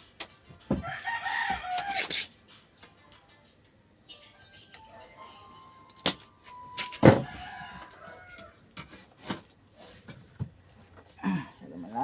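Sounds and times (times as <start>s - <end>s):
rooster crowing: 0.8s - 2.2s, 7.1s - 8.6s.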